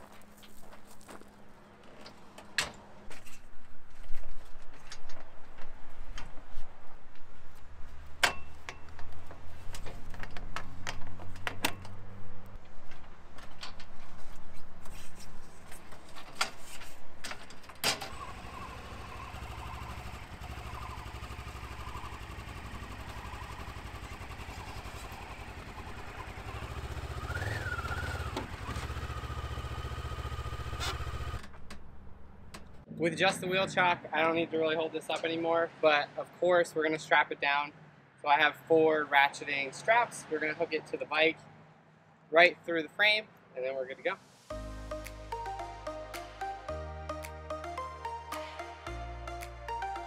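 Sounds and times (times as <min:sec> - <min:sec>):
motorcycle engine idling: 0:18.5 - 0:31.4.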